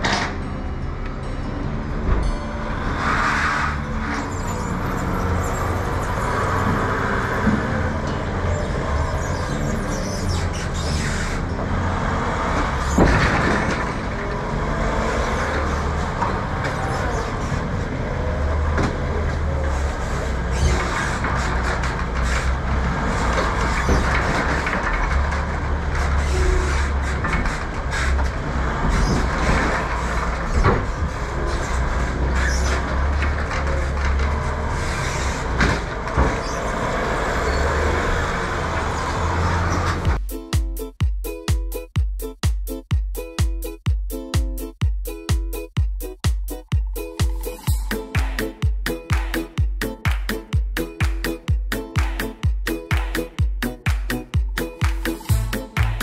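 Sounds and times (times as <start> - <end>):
forklift engine rumble: 0.0 - 40.2
pallets knocking and clattering: 12.9 - 14.2, 18.6 - 34.8.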